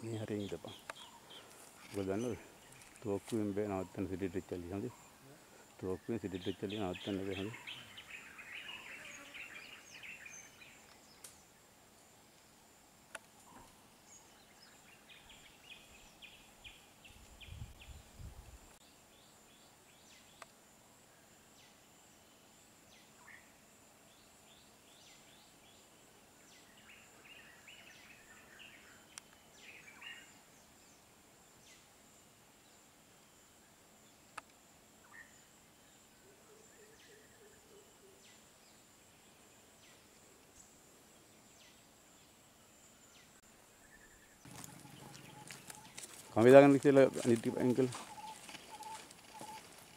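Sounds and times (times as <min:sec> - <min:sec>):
high insect buzz: 0:00.0 - 0:36.3
low warbling bird call: 0:43.9 - 0:46.4, 0:48.0 - 0:49.7
bird calling high notes: 0:47.6 - 0:49.7.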